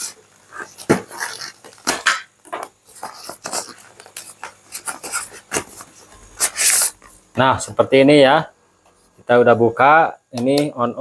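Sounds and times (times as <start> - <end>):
plastic packaging crinkling: 0.6 - 6.8.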